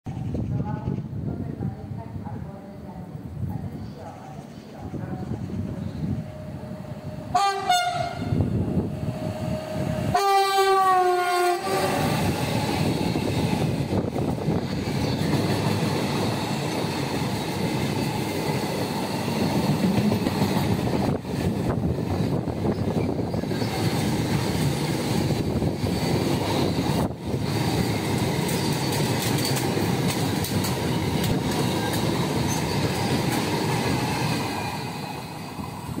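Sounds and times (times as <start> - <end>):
freight train wheels on rails: 0.1 - 36.0
locomotive horn blasts: 7.3 - 8.4, 10.1 - 12.0.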